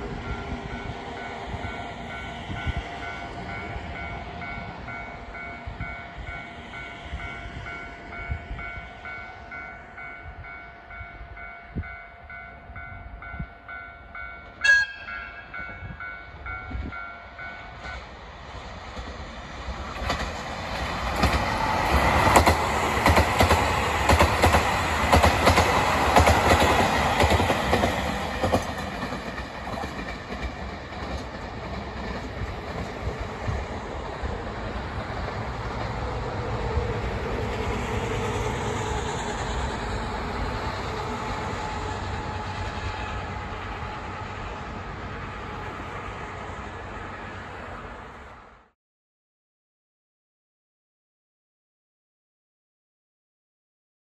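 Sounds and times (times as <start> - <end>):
diesel train passing: 0.0 - 48.8
train horn blast: 14.6 - 15.5.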